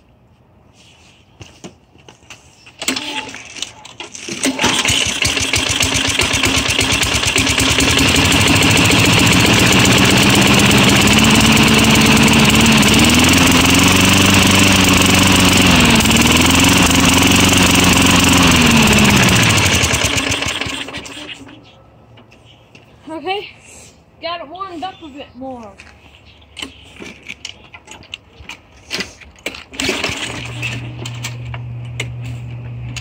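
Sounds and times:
lawn mower engine running: 4.2 - 21.6, 29.7 - 33.0.

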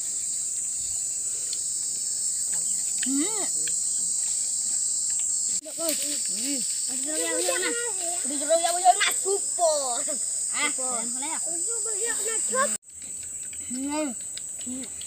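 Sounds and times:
insects chorus: 0.0 - 15.0
children talking: 2.5 - 4.1, 5.6 - 12.8, 13.6 - 15.0.

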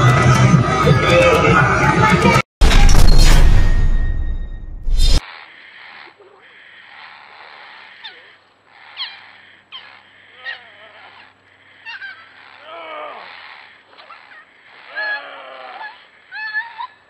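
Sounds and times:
puppy yelping: 6.0 - 17.0.

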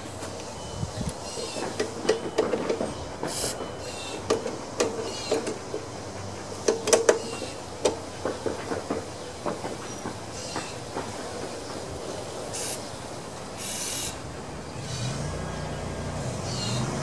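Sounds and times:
aerosol spray hiss: 12.5 - 12.9, 13.6 - 14.2.

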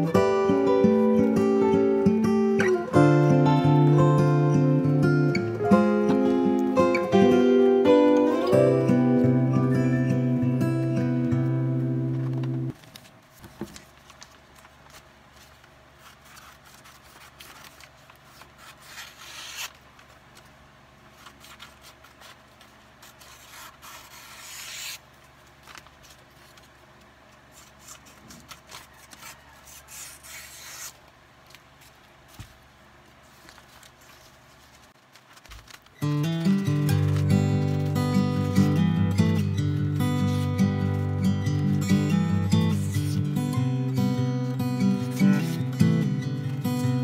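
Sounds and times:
paper stickers rustling and scraping: 11.7 - 47.0.

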